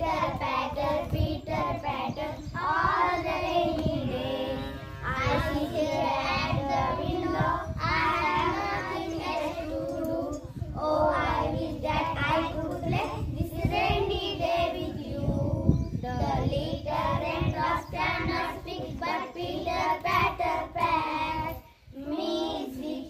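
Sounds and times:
girls singing together: 0.0 - 23.0.

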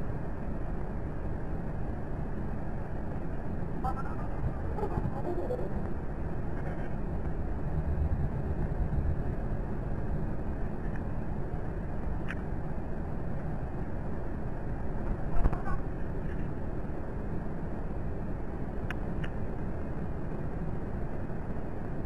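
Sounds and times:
low background rumble: 0.0 - 22.0.

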